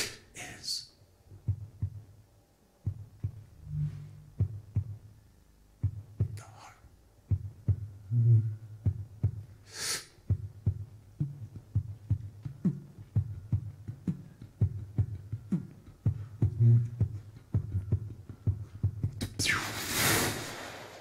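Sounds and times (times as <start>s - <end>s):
person beatboxing: 0.0s - 0.8s, 5.9s - 19.8s.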